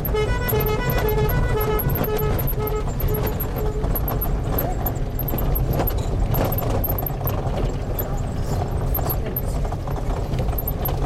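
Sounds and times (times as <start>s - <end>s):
electronic beeping: 0.0s - 7.2s, 10.6s - 11.0s
knocks and rattles: 0.0s - 11.0s.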